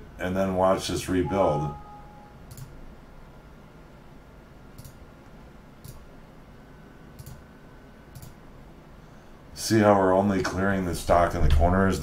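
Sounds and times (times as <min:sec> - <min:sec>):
computer mouse clicking: 0:02.5 - 0:02.8, 0:04.8 - 0:05.0, 0:05.8 - 0:06.0, 0:07.2 - 0:07.4, 0:08.1 - 0:08.4.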